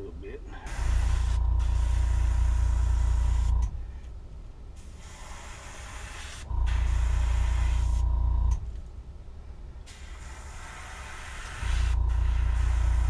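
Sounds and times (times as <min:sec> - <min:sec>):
airbrush hissing: 0:00.6 - 0:03.7, 0:04.8 - 0:08.5, 0:09.9 - 0:13.0
air compressor motor humming: 0:00.6 - 0:03.9, 0:04.8 - 0:08.7, 0:09.9 - 0:13.0.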